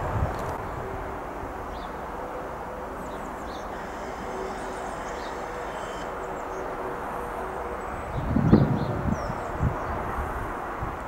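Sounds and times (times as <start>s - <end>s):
electric train rumble: 0.0s - 11.0s
small birds chirping: 1.6s - 2.0s, 2.9s - 10.2s.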